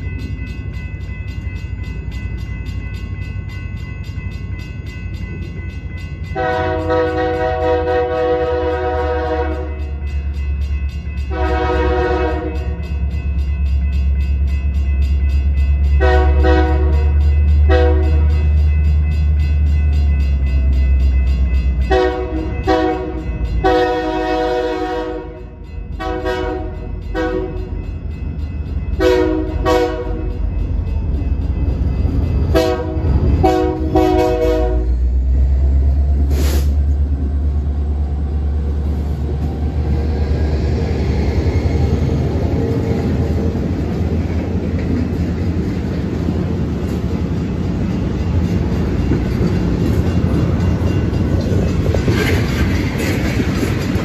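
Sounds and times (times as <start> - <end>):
train rumbling: 0.0 - 54.0
locomotive air horn blasts: 6.4 - 9.7, 11.3 - 12.7, 16.0 - 17.1, 17.7 - 18.2, 21.9 - 25.4, 26.0 - 27.6, 29.0 - 30.2, 32.5 - 35.0.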